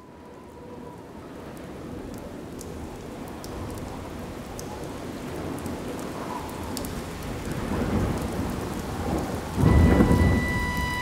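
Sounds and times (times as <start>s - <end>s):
rain hissing: 5.3s - 11.0s
thunder clap rumbling: 7.1s - 11.0s.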